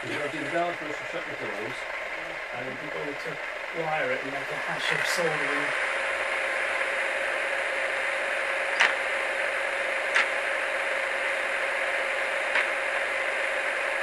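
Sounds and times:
short sharp clicks: 0:08.8 - 0:09.0, 0:10.1 - 0:10.3, 0:12.5 - 0:12.7.

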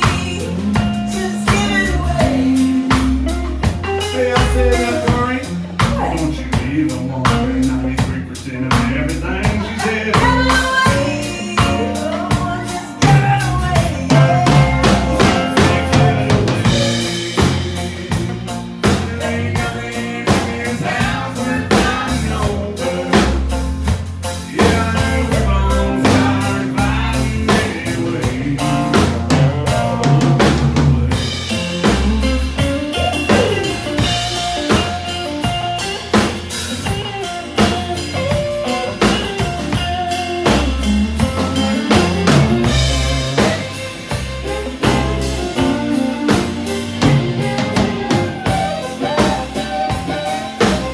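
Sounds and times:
live country band playing: 0:00.0 - 0:50.9
fiddle playing: 0:37.4 - 0:50.9.

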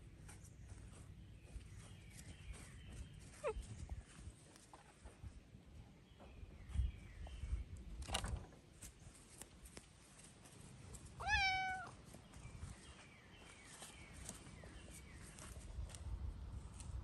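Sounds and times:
cat meowing: 0:11.2 - 0:11.9.

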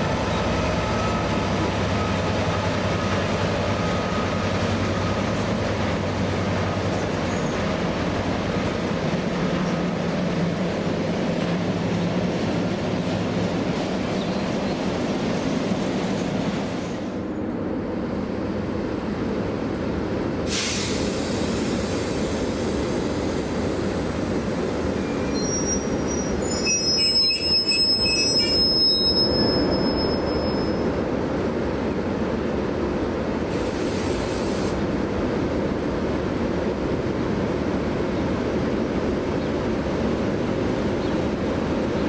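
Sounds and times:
wheels squealing on rails: 0:00.0 - 0:08.1, 0:24.7 - 0:31.0
train rumbling: 0:00.0 - 0:42.0
short hisses: 0:20.5 - 0:22.8, 0:33.5 - 0:34.8.

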